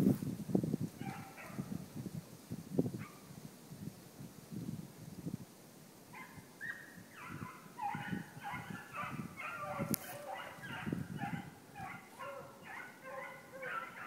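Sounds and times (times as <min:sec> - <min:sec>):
hounds baying: 0:06.2 - 0:14.0.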